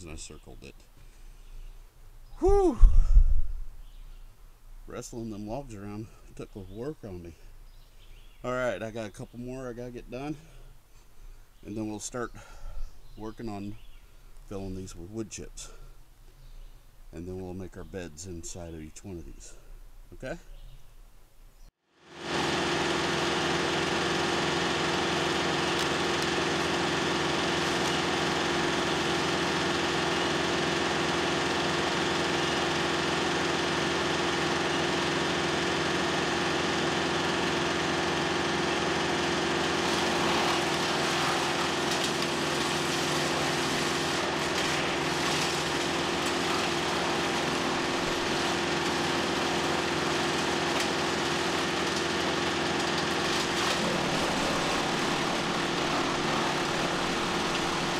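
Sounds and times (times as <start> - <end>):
wood chipper droning: 2.3 - 3.2, 5.1 - 16.4, 21.9 - 57.9
branches being chipped: 25.2 - 28.4.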